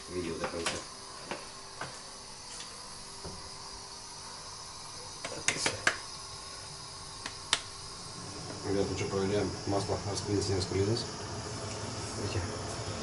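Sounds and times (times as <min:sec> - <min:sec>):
oil hissing: 0:00.0 - 0:13.0
sharp clicks and knocks: 0:05.2 - 0:06.0.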